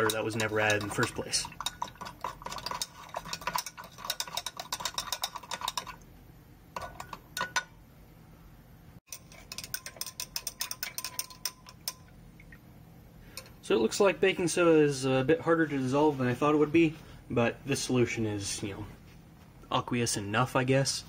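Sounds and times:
stirrer clinking against glass: 0.0 - 6.0, 6.8 - 7.7, 9.1 - 12.2.

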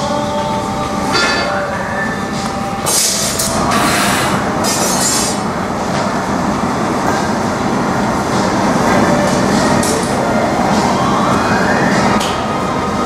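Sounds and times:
gas burner roaring: 0.0 - 13.0.

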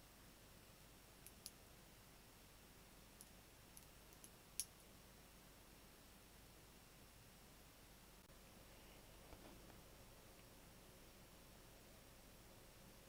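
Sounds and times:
faint hiss: 0.0 - 13.0
magnetic balls clicking together: 1.2 - 1.6, 3.2 - 4.8.

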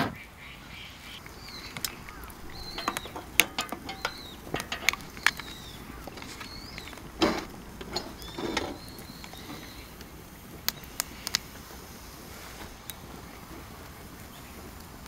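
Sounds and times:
bird chirping: 0.1 - 11.4
wood fire crackling: 0.2 - 15.0.

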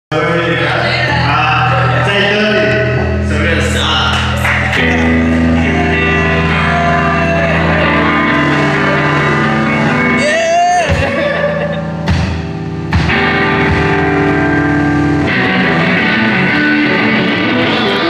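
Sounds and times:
live rock band playing: 0.2 - 18.0
sharp drum strikes: 12.0 - 14.2.

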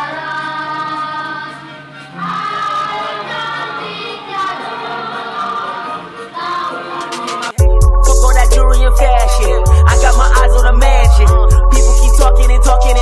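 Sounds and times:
choir singing long held notes: 0.0 - 7.6.

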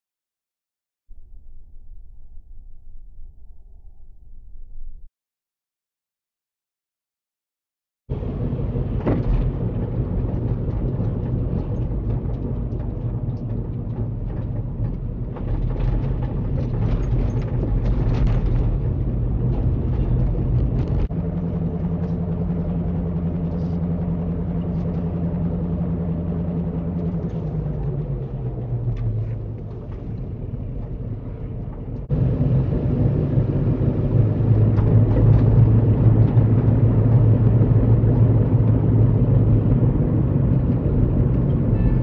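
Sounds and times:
car cabin engine and tyre hum: 8.1 - 42.0.

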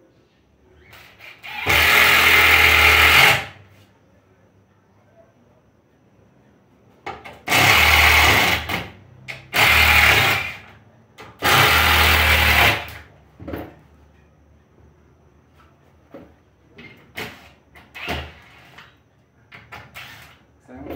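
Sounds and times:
cordless drill into wood: 1.0 - 3.6, 7.5 - 8.8, 9.5 - 10.7, 11.4 - 13.0.

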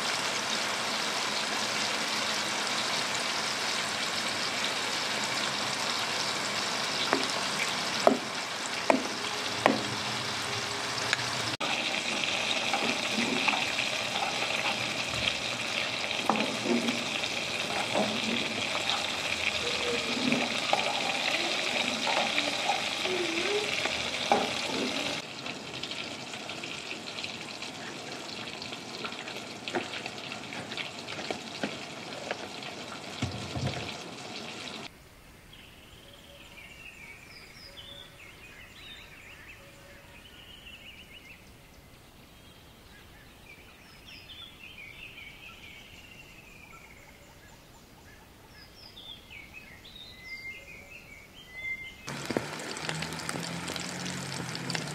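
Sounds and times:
fish sizzling in hot oil: 0.0 - 34.9, 52.1 - 54.9
bird chirping: 17.7 - 25.2, 35.4 - 52.1.

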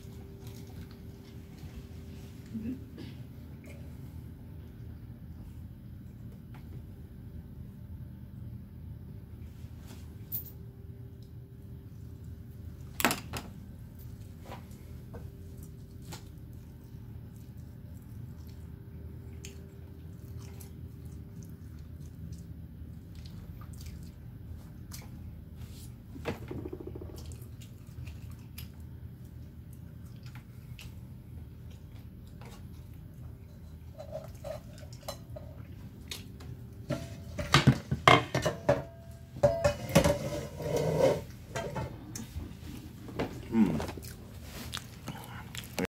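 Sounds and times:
steady low hum: 0.0 - 45.9
person chewing food: 42.0 - 45.9.

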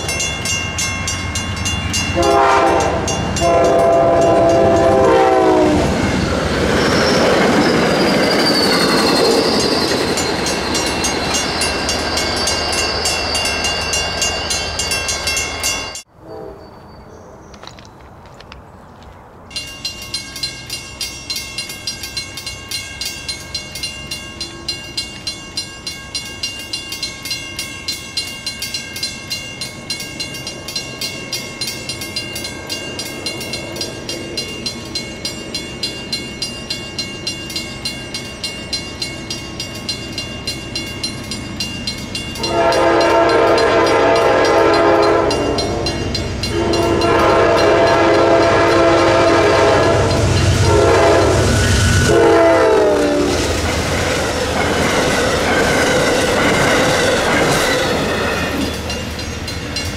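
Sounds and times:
rapid high bell ringing: 0.0 - 4.9, 6.9 - 16.1, 19.5 - 49.1
train rumble: 0.0 - 59.9
locomotive air horn blasts: 2.2 - 6.0, 16.2 - 16.6, 42.4 - 53.4.

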